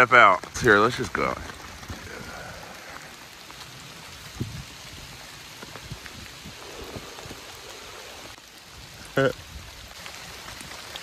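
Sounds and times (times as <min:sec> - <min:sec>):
steady rain falling: 0:00.0 - 0:11.0.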